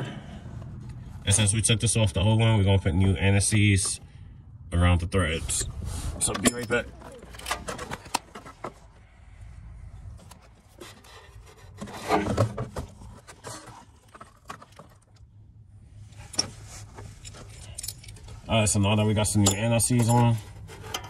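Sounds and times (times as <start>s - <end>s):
handling clicks and scrapes: 5.6s - 9.1s, 10.0s - 15.3s, 16.0s - 21.0s.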